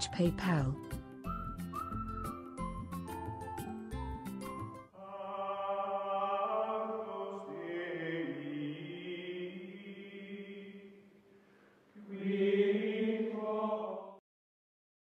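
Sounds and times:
choir-like chanted chords: 0:05.0 - 0:11.0, 0:12.0 - 0:14.2.

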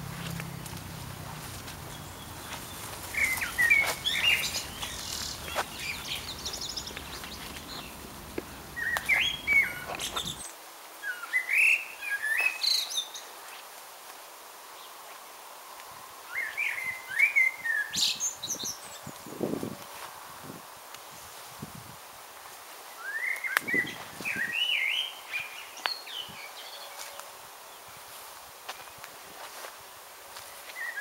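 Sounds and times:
songbird chirping: 0:00.0 - 0:13.6, 0:22.8 - 0:31.0.

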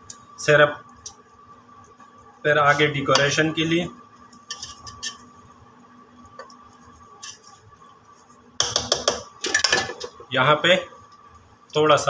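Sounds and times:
faint steady hum: 0:00.0 - 0:12.0
utensils clinking on metal pot: 0:08.7 - 0:10.2.

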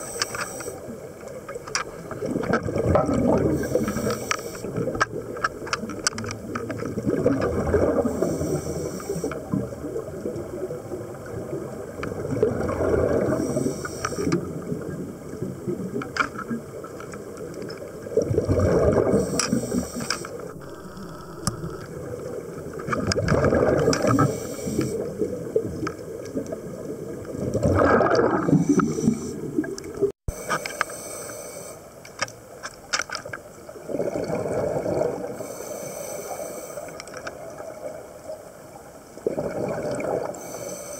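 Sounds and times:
regulator hiss: 0:00.0 - 0:00.9, 0:03.6 - 0:04.8, 0:08.1 - 0:09.4, 0:13.4 - 0:14.4, 0:19.2 - 0:21.9, 0:24.0 - 0:25.1, 0:30.3 - 0:31.9, 0:35.4 - 0:37.0
regulator exhale bubbling: 0:02.2 - 0:05.0, 0:18.2 - 0:22.2, 0:23.0 - 0:25.5, 0:27.4 - 0:31.8
sharp clicks: 0:19.3 - 0:21.9.

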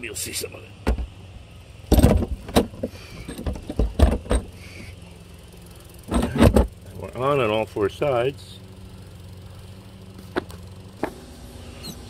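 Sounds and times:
vent cover knocking and rattling: 0:00.8 - 0:01.1, 0:01.9 - 0:04.6, 0:06.1 - 0:06.8.

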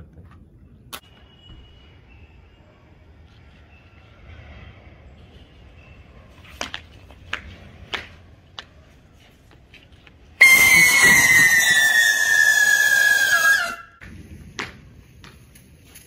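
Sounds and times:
rocket whistle hissing: 0:10.4 - 0:14.0.

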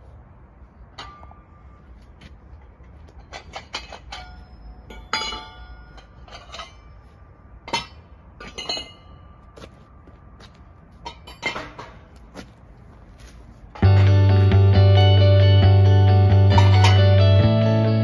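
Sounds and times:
steel parts clanking: 0:00.9 - 0:02.0, 0:02.9 - 0:09.5, 0:11.0 - 0:12.2.

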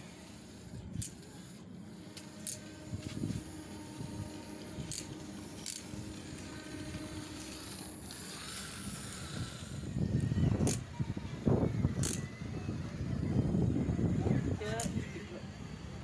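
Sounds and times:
toy gear motors running: 0:00.0 - 0:16.0
sharp clicks: 0:11.9 - 0:12.3.

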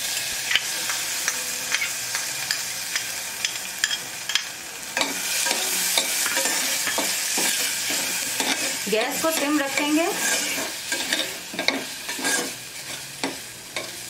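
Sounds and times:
metal spoon scraping steel pot: 0:08.4 - 0:13.0.

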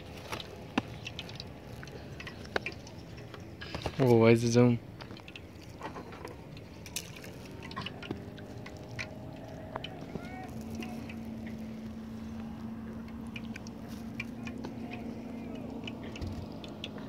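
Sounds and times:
steady low hum: 0:00.0 - 0:17.0
small clicks and knocks: 0:00.1 - 0:04.1, 0:05.0 - 0:12.0.

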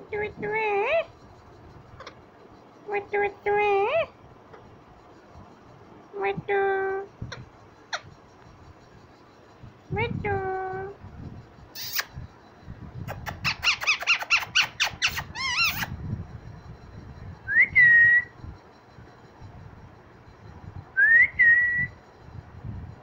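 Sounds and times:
parakeet chicks chirping: 0:13.1 - 0:15.9.

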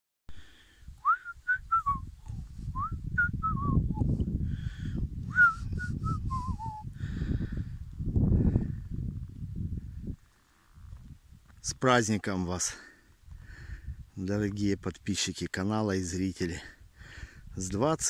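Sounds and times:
person whistling a tune: 0:01.0 - 0:02.1, 0:02.7 - 0:04.2, 0:05.3 - 0:06.9.

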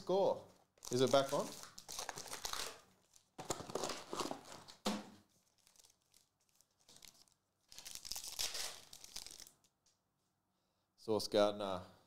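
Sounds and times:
foil wrapper crinkling and tearing: 0:00.8 - 0:09.7.

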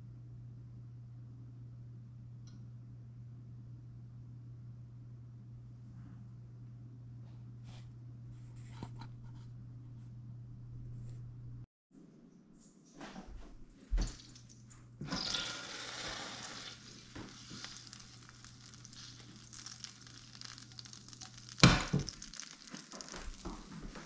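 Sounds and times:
butter sizzling in frying pan: 0:15.1 - 0:24.0.

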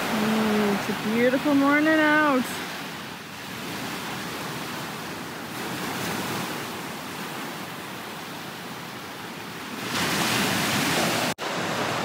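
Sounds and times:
waves breaking on beach: 0:00.0 - 0:12.0.

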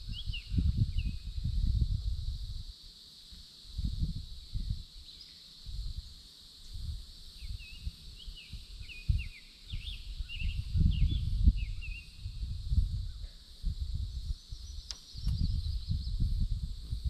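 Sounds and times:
wind buffeting microphone: 0:00.0 - 0:02.7, 0:03.7 - 0:04.9, 0:06.7 - 0:17.0
high insect drone: 0:00.0 - 0:17.0
songbird chirping: 0:07.4 - 0:12.4, 0:14.2 - 0:16.2.

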